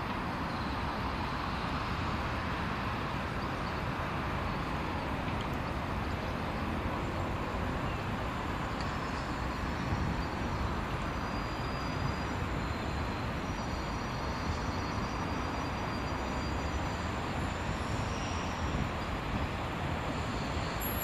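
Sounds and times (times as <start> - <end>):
diesel train engines running: 0.0 - 21.0.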